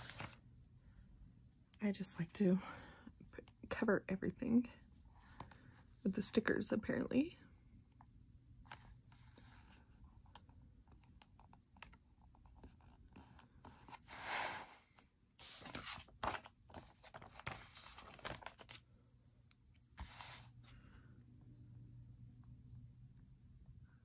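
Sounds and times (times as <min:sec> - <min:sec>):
paper pages rustling: 0:00.0 - 0:00.4, 0:15.4 - 0:18.8, 0:20.0 - 0:20.8.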